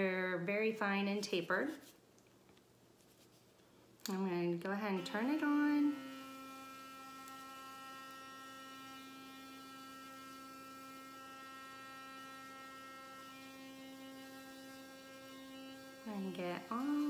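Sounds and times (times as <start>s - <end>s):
electric toothbrush buzzing: 4.7s - 17.0s.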